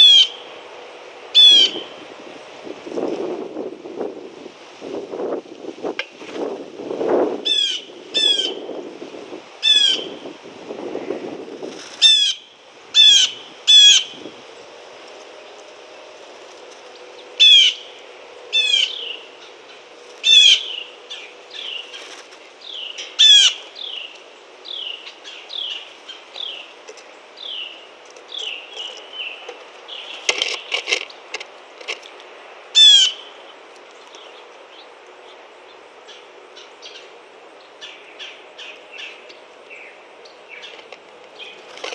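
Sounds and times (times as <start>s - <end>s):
blue jay calling: 0.0s - 0.7s, 1.3s - 2.0s, 7.4s - 8.8s, 9.6s - 10.3s, 11.9s - 14.2s, 16.9s - 31.2s, 32.7s - 41.9s
wings fluttering: 21.7s - 22.6s, 40.6s - 41.9s.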